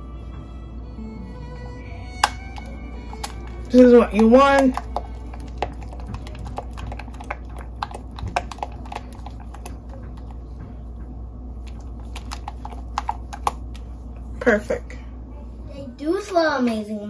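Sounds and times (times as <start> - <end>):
spatula tapping glass bowl: 2.2 - 10.4.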